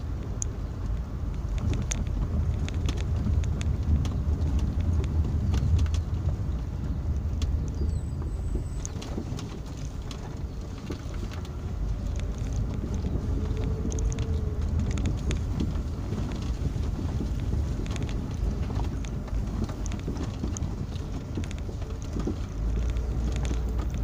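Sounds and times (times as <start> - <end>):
engine and tyres rumbling: 0.0 - 24.0
knocks and clicks: 8.5 - 24.0.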